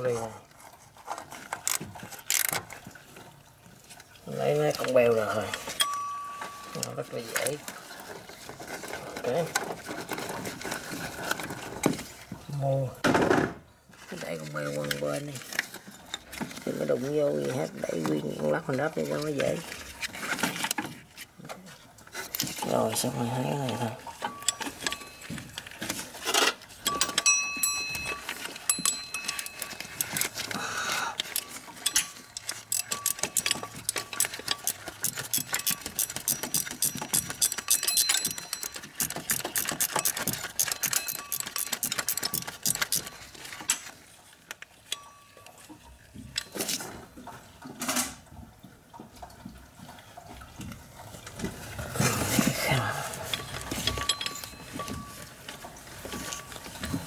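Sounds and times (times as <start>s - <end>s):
rustling of handling: 0.0s - 13.0s, 13.8s - 57.0s
ratchet wrench clicking: 32.7s - 43.2s.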